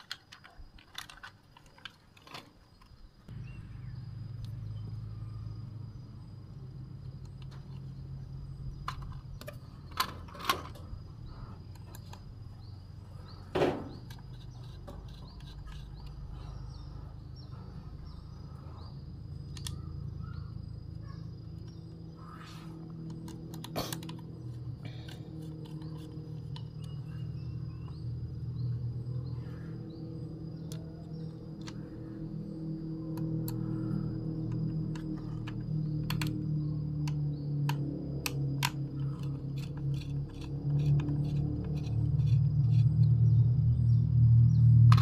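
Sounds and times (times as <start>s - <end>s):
plastic toy clicks and knocks: 0.0s - 2.9s, 34.4s - 42.9s
steady low hum: 2.8s - 45.0s.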